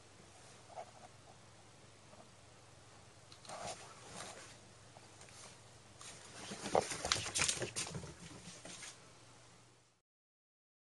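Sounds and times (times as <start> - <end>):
cat paws scampering on wood floor: 5.2 - 9.0.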